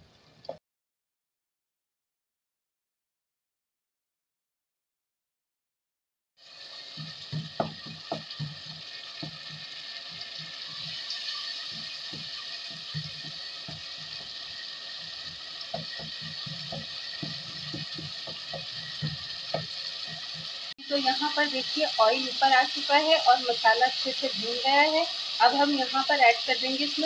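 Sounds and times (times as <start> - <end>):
masala sizzling in hot oil: 6.4 - 27.0
spatula knocking and scraping pan: 6.9 - 20.7.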